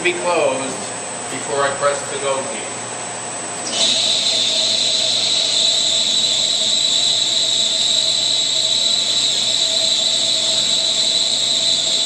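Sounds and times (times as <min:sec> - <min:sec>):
spindle running hum: 0:00.0 - 0:12.0
lathe tool cutting with high whine: 0:03.7 - 0:12.0.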